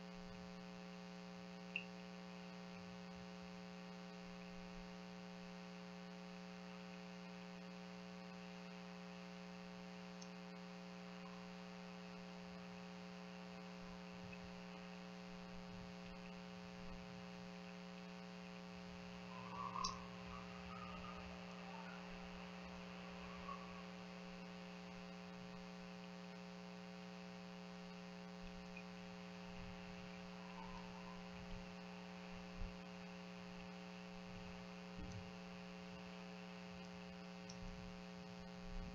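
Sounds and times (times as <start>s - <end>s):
electrical hum: 0.0s - 38.9s.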